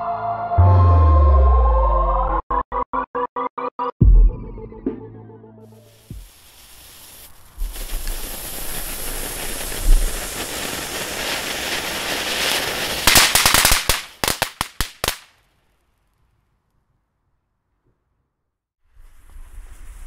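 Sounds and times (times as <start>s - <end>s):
firework fountain hissing: 5.8s - 15.2s
sharp crackling bangs: 6.0s - 15.4s.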